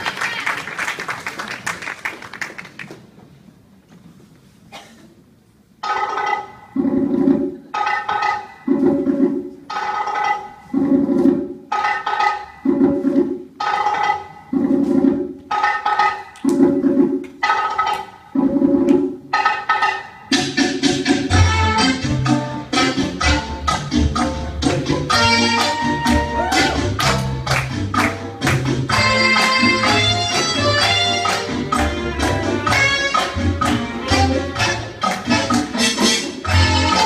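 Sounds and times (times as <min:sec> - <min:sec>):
audience applause: 0:00.0 - 0:03.0
cha-cha-cha dance music: 0:19.0 - 0:37.0.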